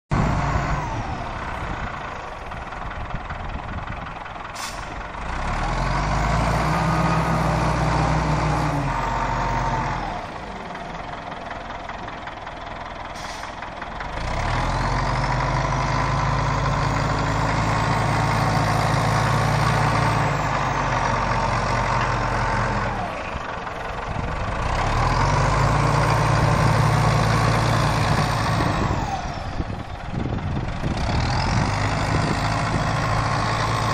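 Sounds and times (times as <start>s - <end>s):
diesel engine revving: 0.1s - 33.9s
engine whine: 14.2s - 33.9s.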